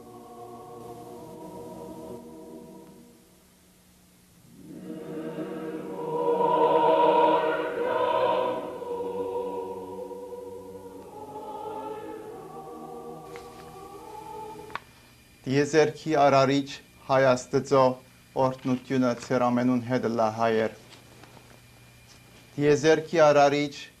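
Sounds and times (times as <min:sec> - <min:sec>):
choir singing held chords: 0:00.0 - 0:03.8, 0:04.4 - 0:15.2.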